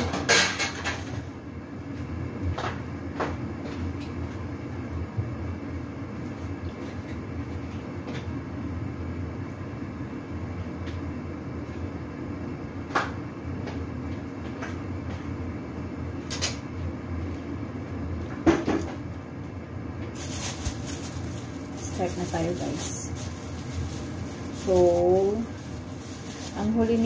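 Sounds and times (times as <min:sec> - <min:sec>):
steady low hum: 0:01.3 - 0:27.0.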